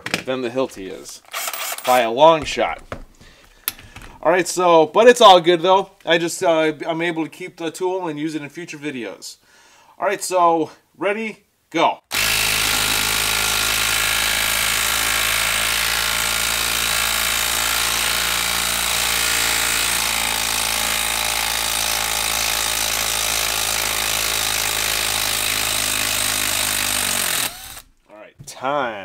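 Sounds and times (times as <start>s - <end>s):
impact driver hammering: 12.1s - 27.9s.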